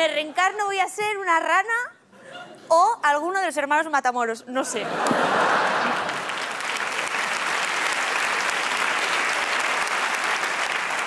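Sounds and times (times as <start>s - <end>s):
large audience applauding: 5.0s - 11.0s.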